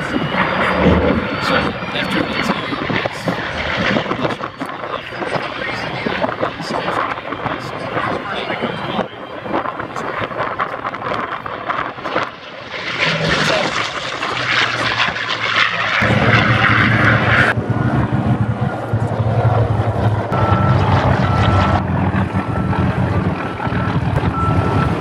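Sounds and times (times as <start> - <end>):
propeller plane droning past: 0.0 - 6.5, 10.4 - 25.0
jet engines roaring: 0.0 - 25.0
repeating beep: 20.4 - 21.8, 24.3 - 25.0.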